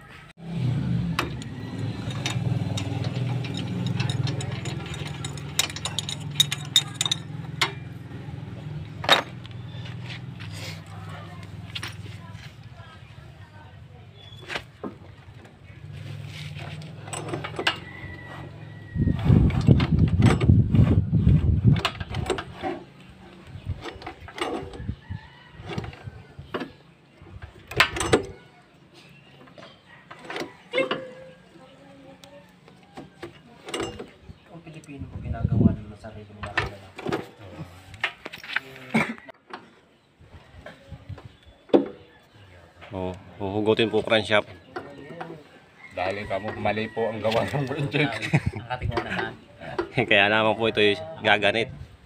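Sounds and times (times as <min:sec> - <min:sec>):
metal clicks and knocks: 0:01.2 - 0:08.0, 0:16.6 - 0:18.0, 0:23.7 - 0:24.8, 0:27.3 - 0:28.4.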